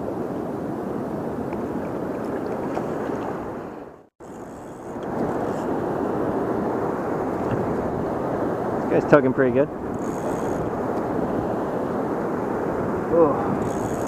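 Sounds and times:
river water flowing: 0.0 - 14.0
wind on microphone: 0.0 - 14.0.

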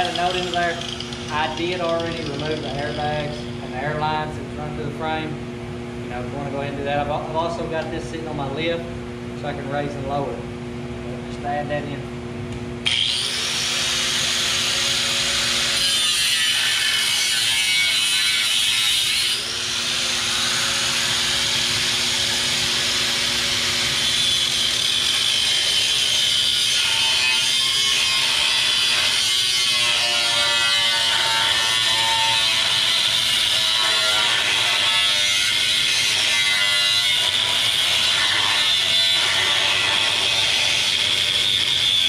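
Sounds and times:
angle grinder cutting steel: 0.0 - 3.6, 12.8 - 42.0.

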